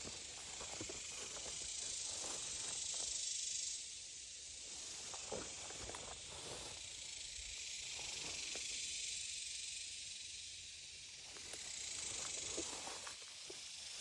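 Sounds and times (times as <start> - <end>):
high-pitched insect chorus: 0.0 - 14.0.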